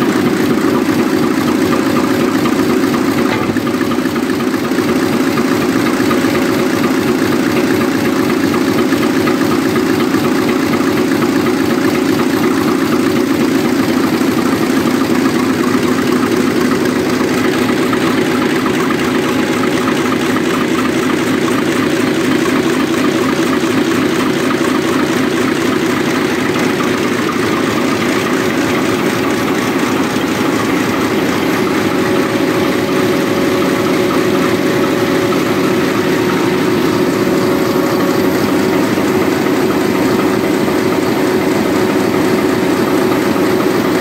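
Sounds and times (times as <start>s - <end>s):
diesel engine droning: 22.5s - 44.0s.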